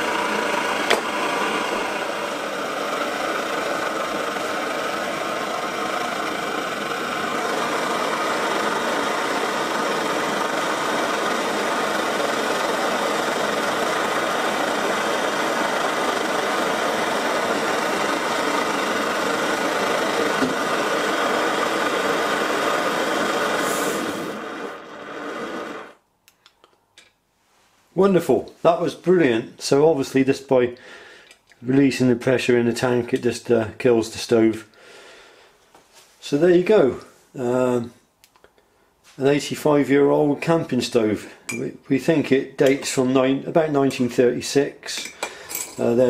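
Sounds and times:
pressure stove burning with a roar: 0.0 - 26.0
pressure release hiss: 23.6 - 24.4.

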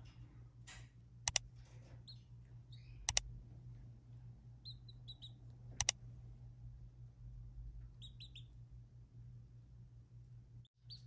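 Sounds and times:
steady low hum: 0.0 - 11.0
sharp double clicks: 1.2 - 1.4, 3.0 - 3.3, 5.8 - 6.0
canary chirps: 1.6 - 6.6, 7.6 - 8.9, 10.2 - 11.0.

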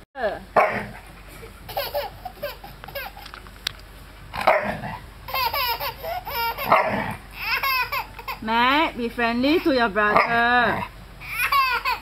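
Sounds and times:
dog barking: 0.6 - 0.9, 4.4 - 4.8, 6.7 - 7.1
toddler squealing and laughing: 1.6 - 3.3, 5.3 - 8.5, 11.2 - 12.0.

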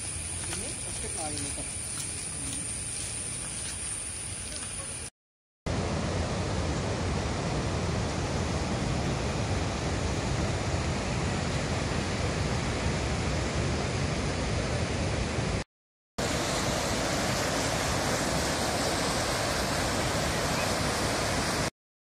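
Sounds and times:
waterfall and rapids rushing: 5.7 - 15.6, 16.2 - 21.7.

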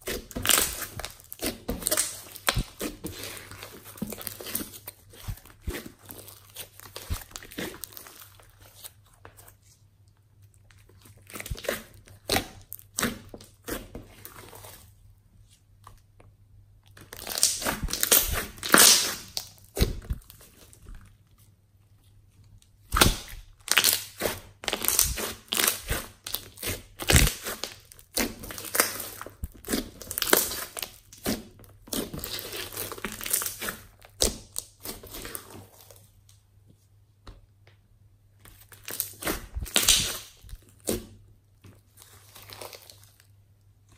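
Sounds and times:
slime squishing: 0.0 - 36.4, 38.4 - 43.9
slime crackling pops: 17.2 - 20.2, 22.9 - 31.4, 39.0 - 41.0.

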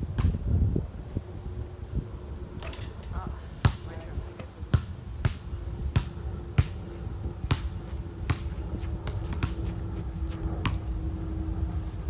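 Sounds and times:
basketball bouncing on hard court: 7.5 - 9.7, 10.6 - 10.9.

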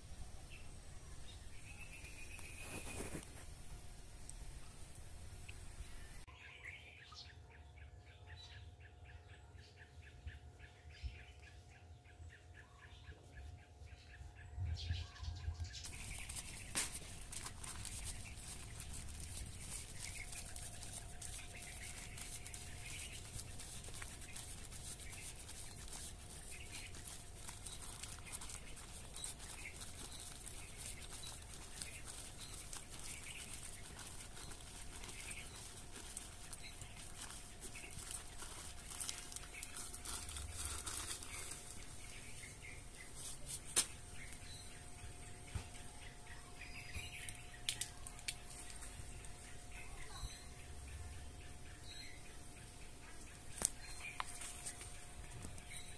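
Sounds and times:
potting soil handled by hand: 1.7 - 3.6, 15.5 - 50.5, 53.2 - 55.9
birds chirping: 5.4 - 55.9
plastic grow bag crinkling: 15.6 - 45.8, 46.6 - 50.4, 53.3 - 55.9.

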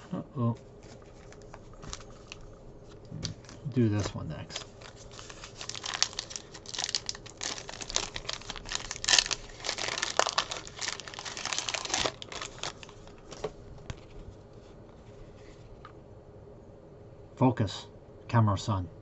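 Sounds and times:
foil wrapper crinkling: 0.8 - 14.3.

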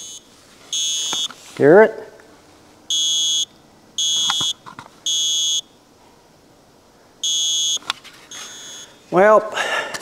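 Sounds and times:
smoke detector beeping: 0.0 - 1.3, 2.9 - 5.8, 7.2 - 9.0.

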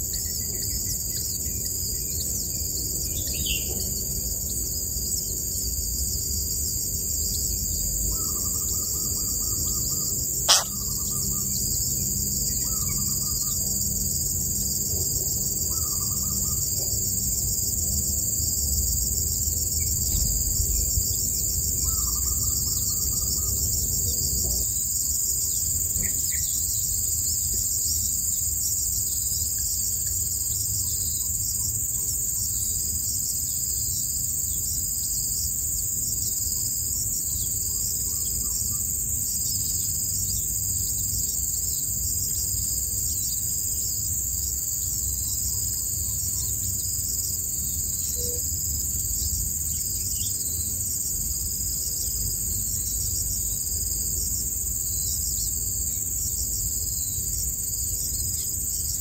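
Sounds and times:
insects chirring: 0.0 - 59.0
faint bird chirps: 8.1 - 11.6.

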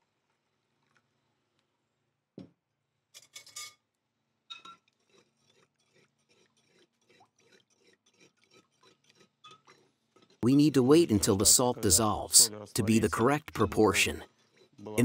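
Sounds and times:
utensil scraping clay pot: 4.5 - 15.0.

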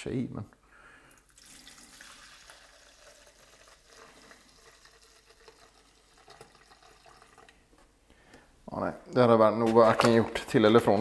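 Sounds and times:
liquid pouring into plastic jug: 1.1 - 7.7.

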